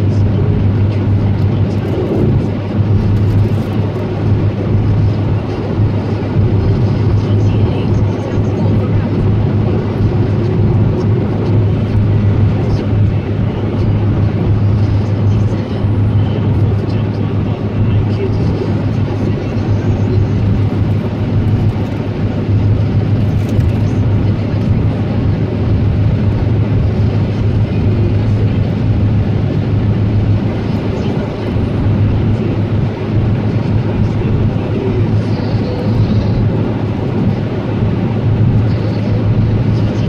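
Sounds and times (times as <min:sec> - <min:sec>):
constant low hum: 0:00.0 - 0:40.0
road and engine noise in car: 0:00.0 - 0:40.0.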